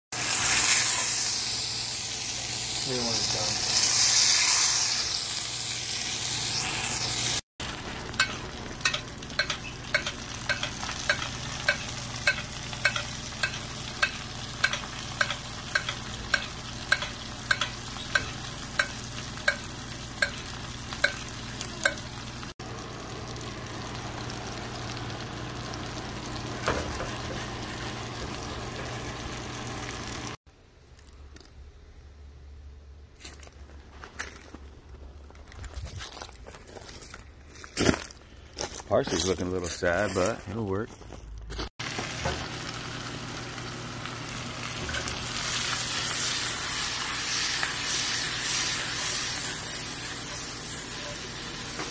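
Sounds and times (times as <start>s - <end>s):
meat sizzling in a pan: 0.1s - 30.4s, 41.8s - 51.9s
metal spoon clinking against pan: 8.2s - 22.1s.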